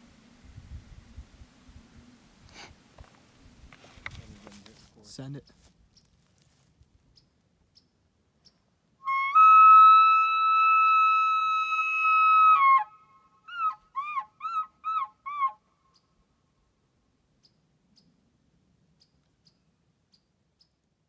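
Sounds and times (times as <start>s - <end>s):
elk bugle call whistle: 9.0s - 15.6s.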